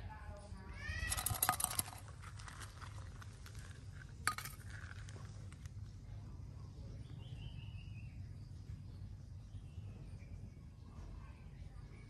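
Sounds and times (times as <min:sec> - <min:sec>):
faint steady background noise: 0:00.0 - 0:12.0
plate clinking on gravel: 0:01.1 - 0:05.7.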